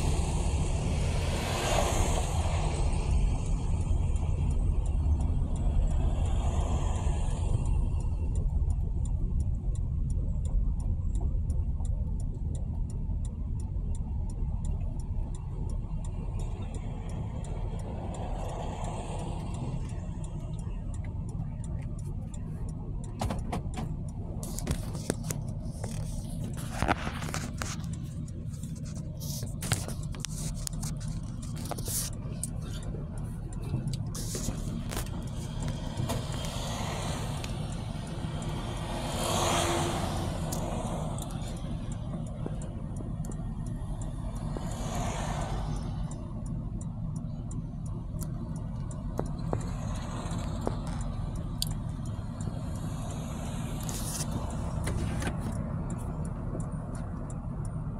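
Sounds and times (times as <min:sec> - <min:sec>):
vehicle swishing past: 0:00.0 - 0:03.8, 0:33.8 - 0:42.3, 0:44.1 - 0:46.2
low rumble of traffic: 0:00.0 - 0:57.9.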